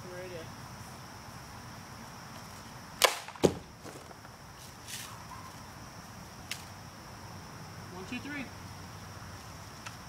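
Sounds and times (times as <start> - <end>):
insects droning: 0.0 - 10.0
air rifle sharp crack: 3.0 - 3.6.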